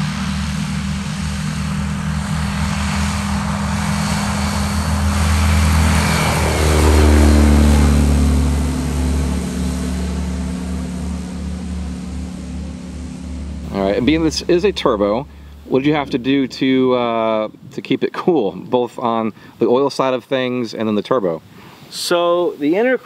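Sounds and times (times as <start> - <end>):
propeller plane engine at takeoff: 0.0 - 17.7, 19.3 - 19.6.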